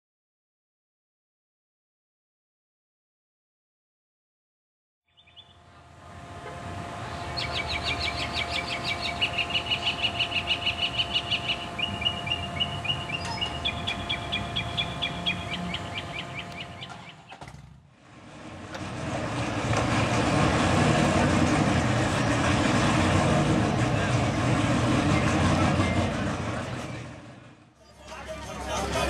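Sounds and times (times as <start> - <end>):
songbird trilling: 5.1 - 5.6, 7.2 - 17.4
outdoor background noise: 5.1 - 29.0
steady low hum: 5.2 - 29.0.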